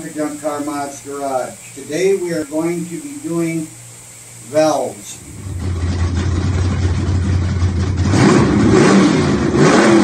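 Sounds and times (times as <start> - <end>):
car engine rumbling and revving: 5.2 - 10.0.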